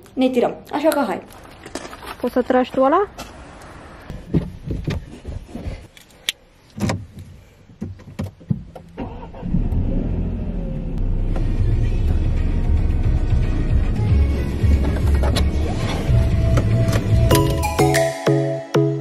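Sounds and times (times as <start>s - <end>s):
clicks and knocks in a car: 6.8s - 9.0s
car engine starting and running: 8.4s - 17.7s.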